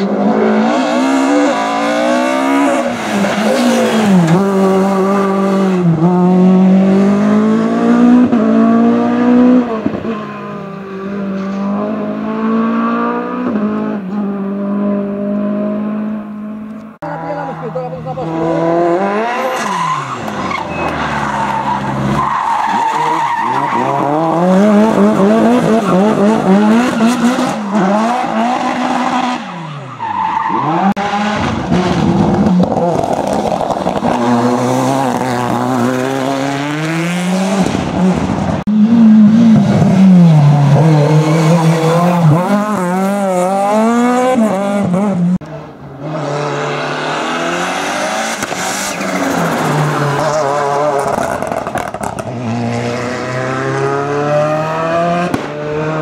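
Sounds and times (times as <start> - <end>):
race car engine revving: 0.0 - 56.0
tyres squealing and skidding: 0.7 - 5.6, 17.0 - 32.0, 40.4 - 43.9, 46.4 - 52.2.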